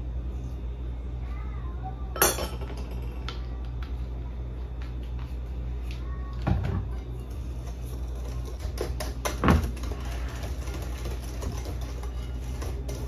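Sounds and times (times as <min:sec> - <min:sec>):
steady low hum: 0:00.0 - 0:13.0
knocks on kitchen counter: 0:09.3 - 0:09.8.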